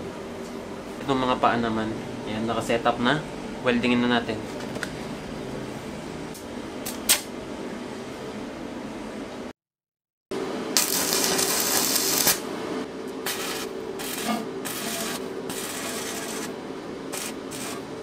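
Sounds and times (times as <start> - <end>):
steady hum: 0.0 - 9.5, 10.4 - 18.0
welding arc crackling: 10.7 - 12.5, 13.2 - 16.5, 17.1 - 18.0.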